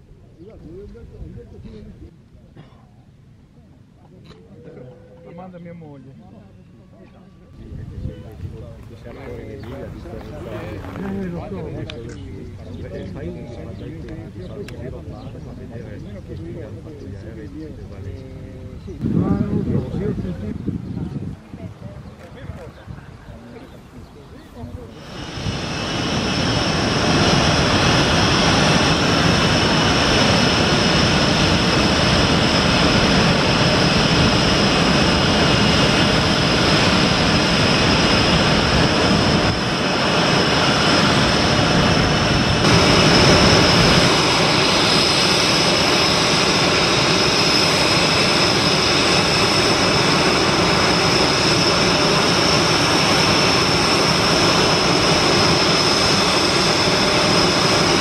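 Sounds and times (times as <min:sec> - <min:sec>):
jet engine noise: 0:07.0 - 0:58.0
high-pitched turbine whine: 0:24.8 - 0:58.0.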